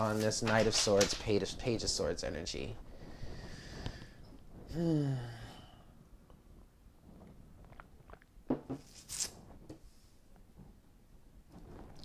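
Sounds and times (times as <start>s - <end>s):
person drinking and swallowing: 7.1s - 8.9s.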